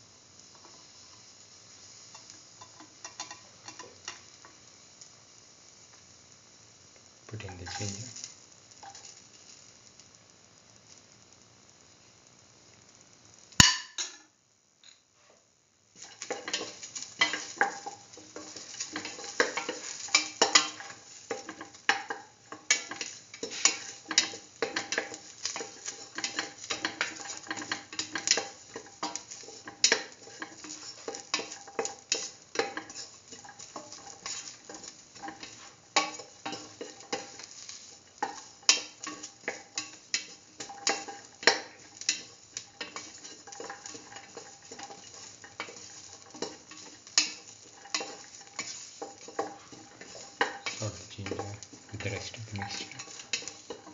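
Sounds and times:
light frying sizzle: 0.0 - 53.9
spatula scraping metal pan: 16.0 - 53.9.

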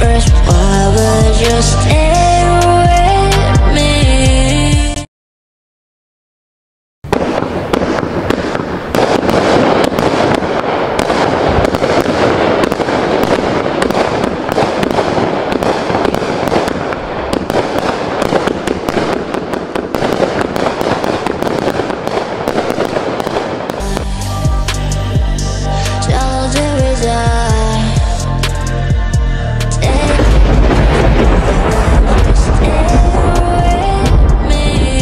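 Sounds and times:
fireworks popping and bursting: 7.1 - 24.3, 29.8 - 35.0.

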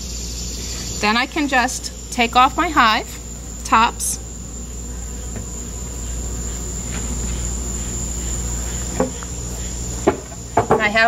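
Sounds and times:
high-pitched insect chorus: 0.0 - 11.0
hive covers knocking: 4.8 - 11.0.

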